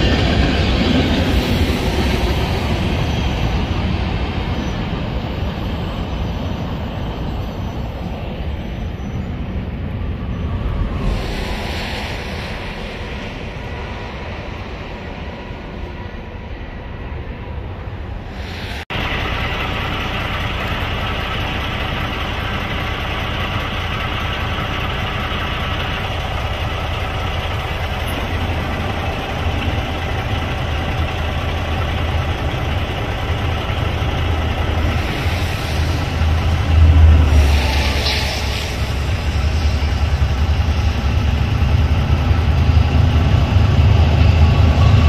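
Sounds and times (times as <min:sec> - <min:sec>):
diesel locomotive engine rumble: 0:00.0 - 0:45.0.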